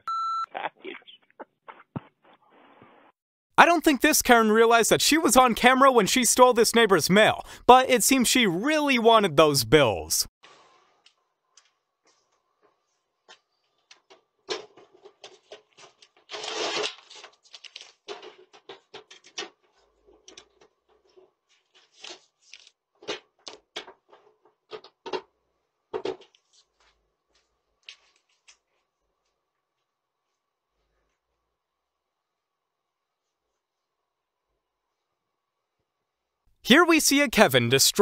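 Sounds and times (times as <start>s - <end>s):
paper mail rustling: 15.1s - 19.4s, 21.5s - 23.3s.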